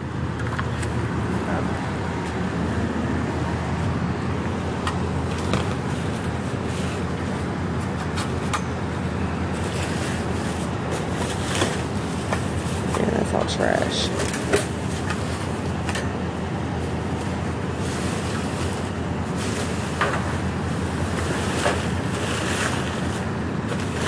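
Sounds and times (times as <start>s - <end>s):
motor vehicle rumbling: 0.0s - 24.0s
trash clicking in a dumpster: 9.6s - 13.1s, 14.0s - 16.2s, 17.7s - 24.0s.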